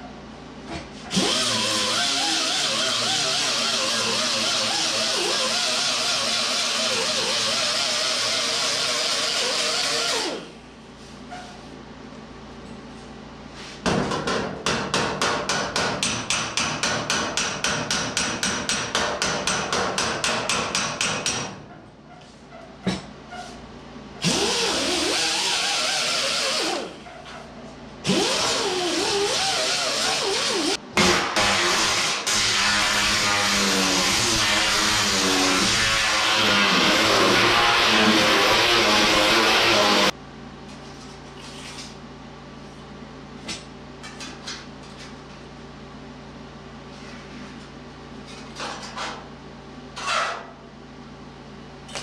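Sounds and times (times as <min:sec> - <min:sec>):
disc grinder grinding steel: 0:34.0 - 0:40.1.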